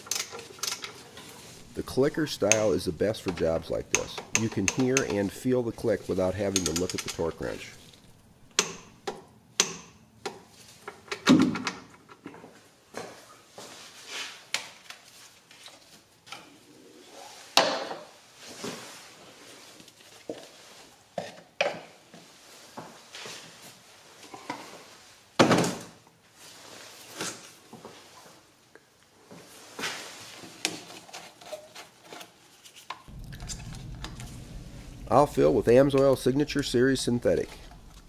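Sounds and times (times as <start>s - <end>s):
tools knocking and clicking: 3.3s - 5.2s, 6.5s - 10.4s.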